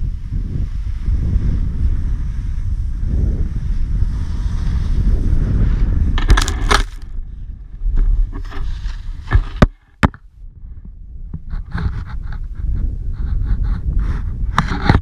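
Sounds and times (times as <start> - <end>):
wind on camera microphone: 0.0 - 15.0
sliding in snow: 0.1 - 7.1, 8.1 - 9.6
thuds and scraping in snow: 0.3 - 7.2, 7.8 - 10.2, 11.4 - 15.0.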